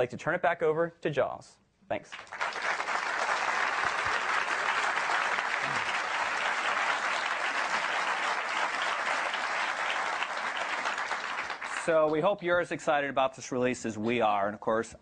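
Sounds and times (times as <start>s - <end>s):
audience applauding: 2.1s - 12.2s.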